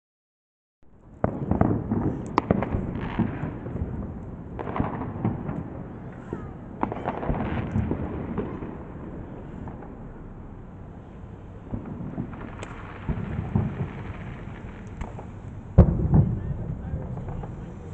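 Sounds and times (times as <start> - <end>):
low rolling echo: 0.8 - 17.9
fireworks bangs and crackling: 0.9 - 17.9.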